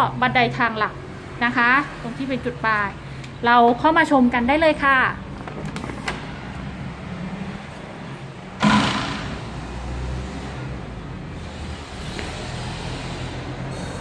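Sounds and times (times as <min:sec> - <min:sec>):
road traffic rumbling: 0:00.0 - 0:14.0
sudden loud noise: 0:08.6 - 0:10.0.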